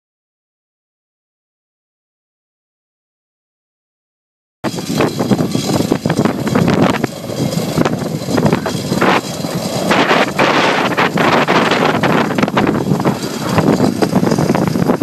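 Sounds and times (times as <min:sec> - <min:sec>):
engine rumble: 0:04.6 - 0:15.0
wind buffeting the microphone: 0:04.6 - 0:15.0.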